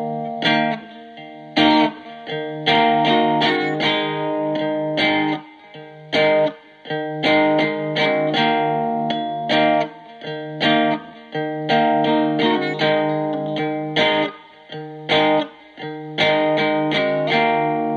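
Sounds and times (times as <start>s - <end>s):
distorted electric guitar chords: 0.0s - 17.9s.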